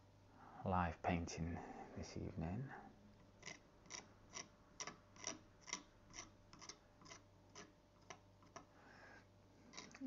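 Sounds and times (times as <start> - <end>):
palette knife scraping paint on board: 3.4 - 8.7.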